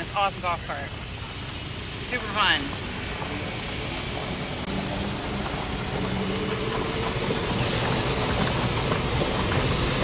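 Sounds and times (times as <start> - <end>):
golf cart motor hum: 0.0 - 10.0
tyres on gravel: 0.0 - 10.0.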